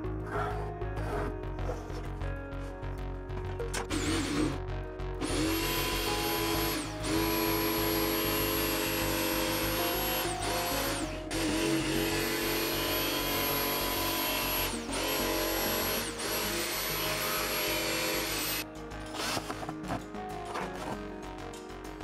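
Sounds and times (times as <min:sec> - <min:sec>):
jigsaw cutting plywood: 0:03.8 - 0:04.6, 0:05.2 - 0:20.0.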